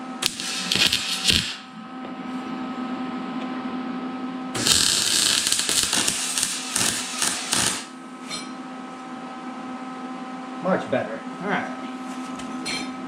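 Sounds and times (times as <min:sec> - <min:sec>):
arc welder crackling hiss: 0:00.0 - 0:01.8, 0:04.6 - 0:08.0
steady hum: 0:00.0 - 0:12.4.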